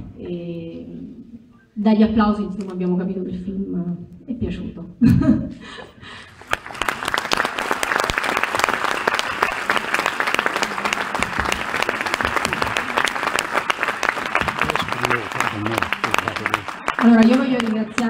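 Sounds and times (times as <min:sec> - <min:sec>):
audience applauding: 0:06.3 - 0:18.0.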